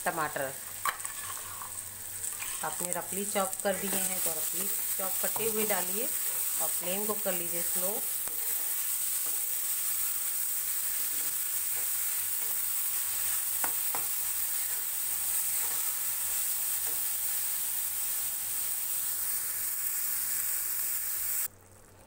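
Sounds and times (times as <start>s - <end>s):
tomatoes sizzling in oil: 0.0s - 22.0s
steel spatula scraping pan: 0.8s - 2.8s.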